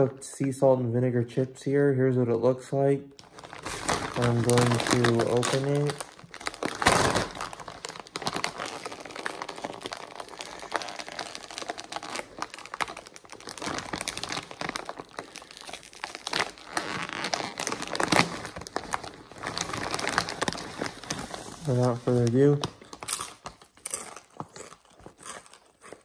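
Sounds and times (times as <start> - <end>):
chip bag crinkling: 3.2 - 26.0.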